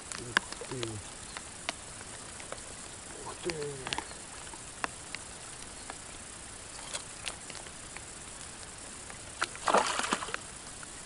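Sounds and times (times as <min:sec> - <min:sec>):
light ticks and taps: 0:00.0 - 0:02.6, 0:03.4 - 0:06.0
faint steady hiss: 0:00.0 - 0:11.0.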